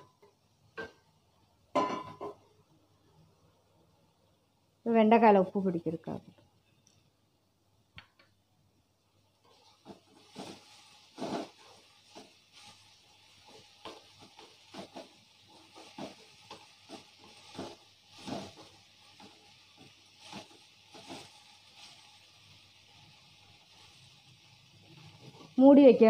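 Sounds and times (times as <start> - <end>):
okra sizzling in oil: 8.9 - 26.0
wooden spatula scraping metal pan: 9.6 - 22.0.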